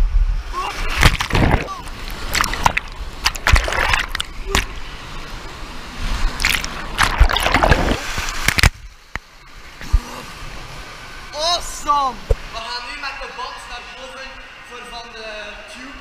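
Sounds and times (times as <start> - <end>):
rapids water churning and splashing: 0.5 - 11.4
loud splashes: 0.7 - 5.3, 6.0 - 8.8.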